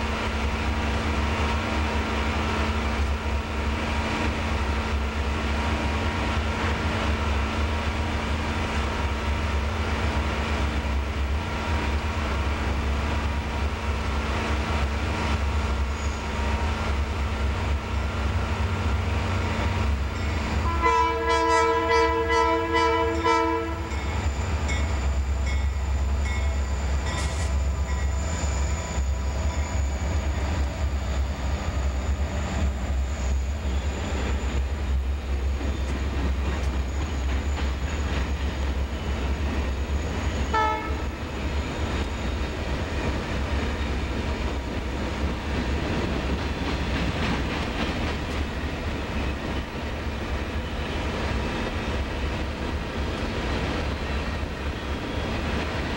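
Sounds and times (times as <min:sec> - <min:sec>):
diesel locomotives rumbling past: 0:00.0 - 0:55.9
locomotive air horn chord: 0:20.6 - 0:23.9, 0:40.5 - 0:41.2.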